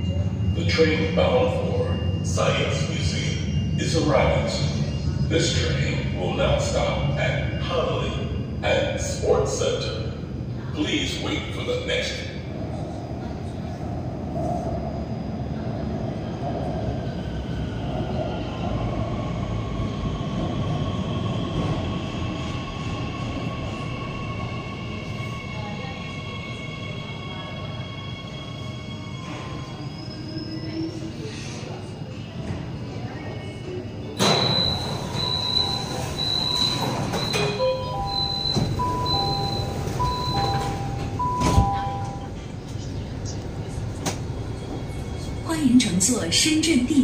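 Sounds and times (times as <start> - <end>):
train wheels rumbling on rail: 7.6 - 47.0
high warning beep: 34.2 - 42.3.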